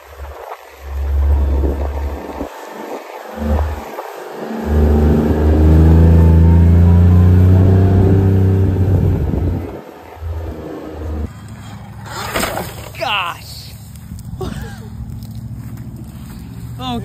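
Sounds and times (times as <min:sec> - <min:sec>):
engine revving under load: 0:00.0 - 0:12.9.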